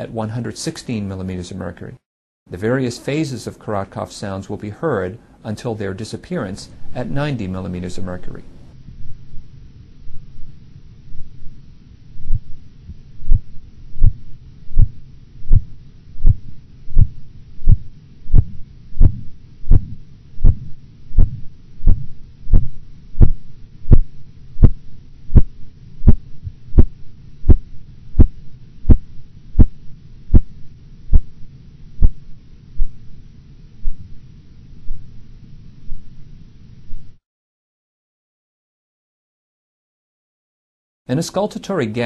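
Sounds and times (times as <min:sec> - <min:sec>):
low rumble: 0:06.7 - 0:37.2
clear repetitive heartbeat taps: 0:12.2 - 0:31.4, 0:32.0 - 0:32.2, 0:33.8 - 0:34.2.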